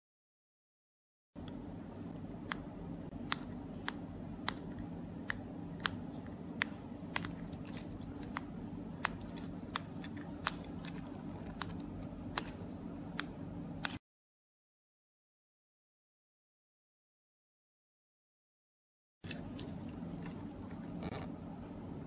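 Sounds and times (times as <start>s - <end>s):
steady low hum: 1.4s - 14.0s, 19.2s - 22.0s.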